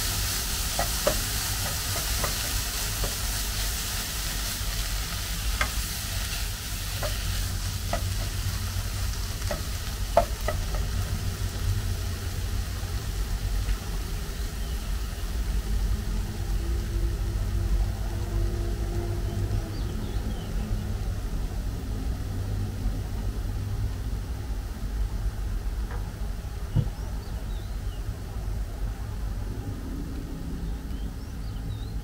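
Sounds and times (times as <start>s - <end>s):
utensil tapping pan: 0.0s - 3.9s, 4.7s - 11.3s
food sizzling in a pan: 0.0s - 22.5s
low rumble: 28.5s - 31.9s.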